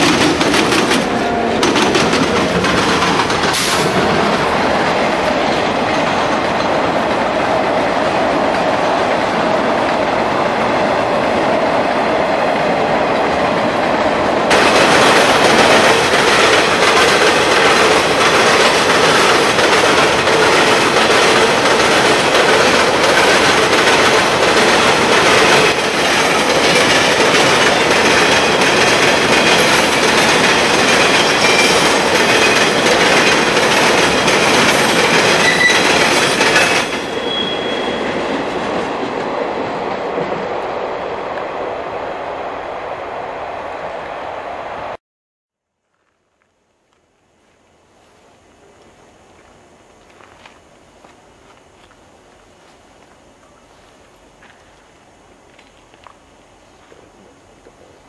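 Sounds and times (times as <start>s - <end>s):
train wheels clattering over crossing: 0.0s - 10.8s, 11.9s - 39.3s.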